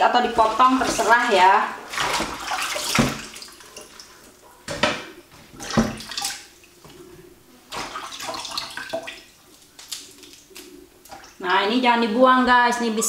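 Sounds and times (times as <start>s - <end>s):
wet rustling leaves: 0.0s - 4.2s.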